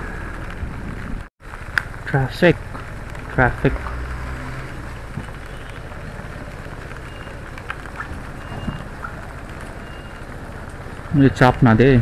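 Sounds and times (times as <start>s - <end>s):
motorcycle engine: 0.0s - 11.4s
wind and road noise: 0.0s - 12.0s.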